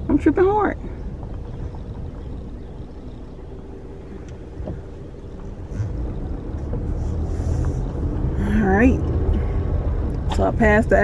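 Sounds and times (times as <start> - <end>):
car engine and road noise: 0.0 - 11.0
faint steady hum: 0.0 - 11.0
light ticks: 4.2 - 4.8.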